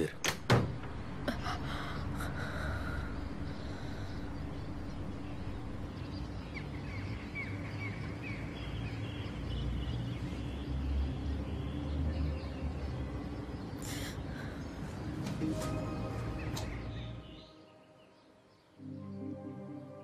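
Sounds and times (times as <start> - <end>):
low background rumble: 0.7 - 8.0.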